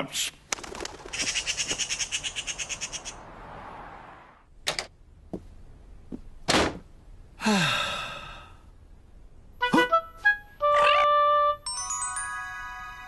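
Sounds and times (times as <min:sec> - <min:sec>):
magpie rattling chatter: 0:00.9 - 0:03.2
sigh falling in pitch: 0:07.4 - 0:08.6.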